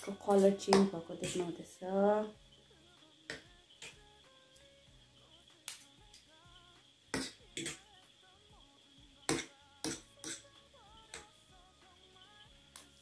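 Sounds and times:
faint background music: 0.0s - 13.0s.

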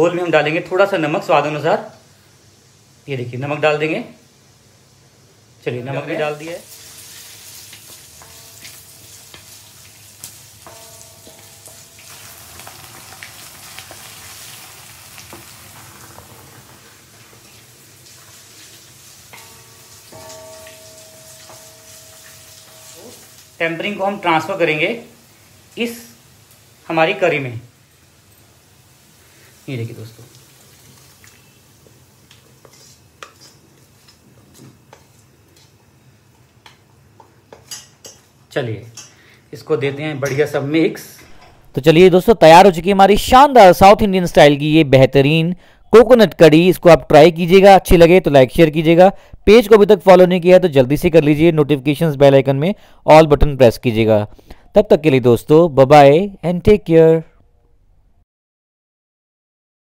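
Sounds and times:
food sizzling in hot oil: 4.1s - 39.2s
wooden spatula scraping pan: 32.6s - 34.2s.

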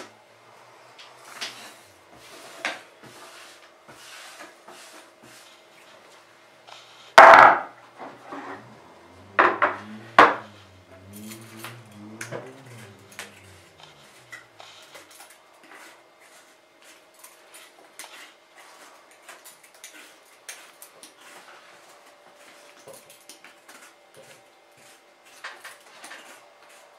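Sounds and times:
knife scraping coconut flesh: 12.7s - 22.8s.

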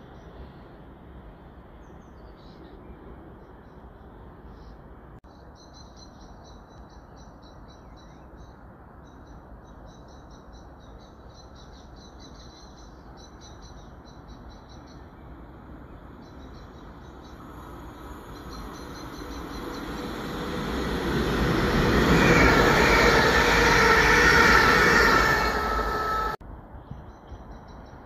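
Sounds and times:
bird chirping: 5.4s - 28.0s
low outdoor rumble: 15.0s - 26.4s.

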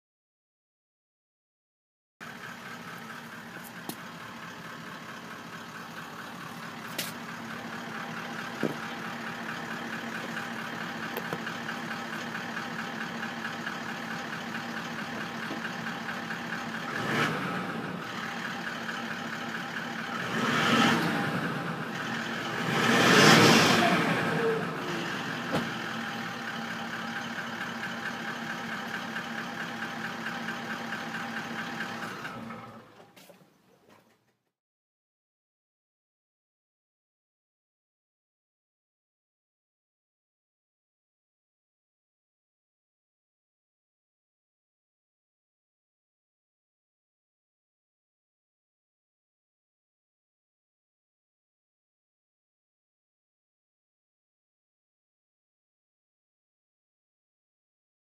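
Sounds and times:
diesel engine idling and revving: 2.2s - 33.3s.

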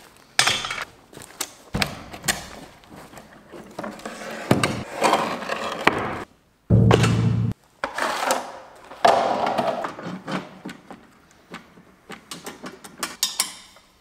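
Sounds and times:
metal clanks and knocks: 6.7s - 7.6s.

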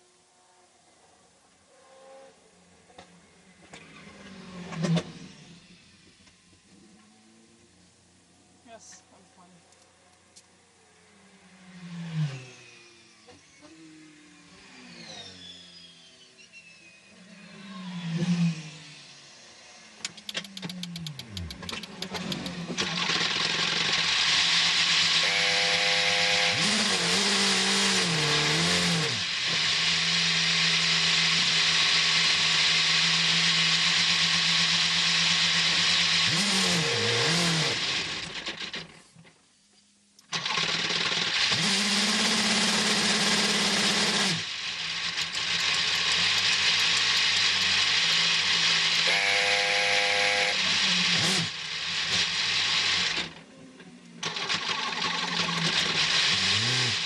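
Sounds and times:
race car engine humming: 2.7s - 39.3s
loud hiss: 22.8s - 38.6s.

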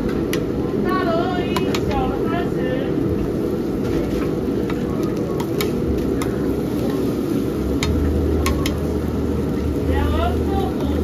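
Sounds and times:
cooking roar: 0.0s - 11.0s
low hum: 0.0s - 11.0s
utensils clicking and tapping: 7.8s - 8.9s.

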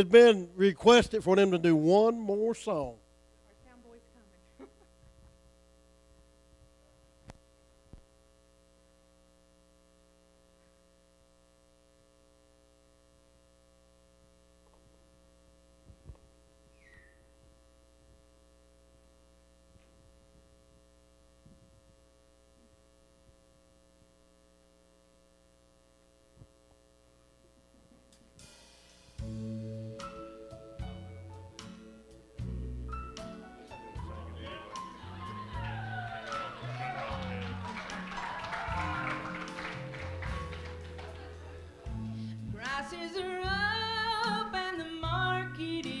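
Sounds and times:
electrical mains hum: 0.0s - 46.0s.

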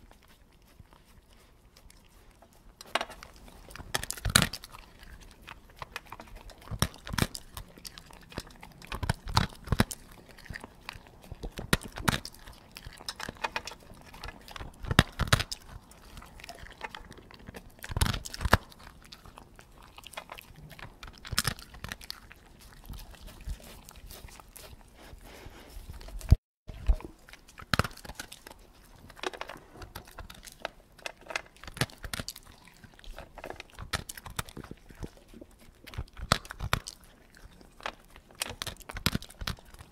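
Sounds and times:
dog chewing food: 0.0s - 39.9s.

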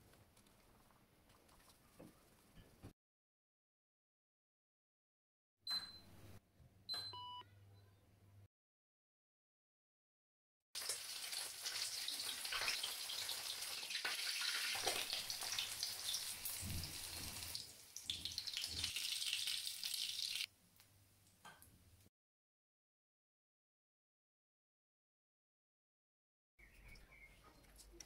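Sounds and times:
fish frying in hot oil: 10.8s - 20.5s.

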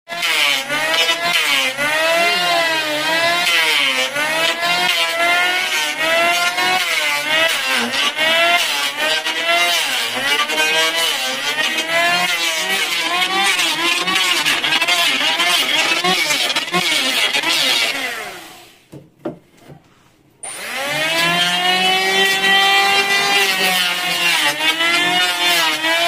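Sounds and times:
electric hand planer motor whine: 0.1s - 18.8s, 20.4s - 26.0s
rasp of cutting wood: 0.1s - 18.8s, 20.6s - 26.0s.

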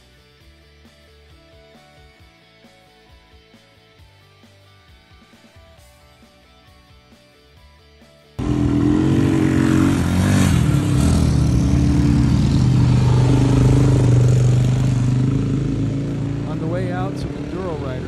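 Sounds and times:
dirt bike engine passing: 8.4s - 18.0s.

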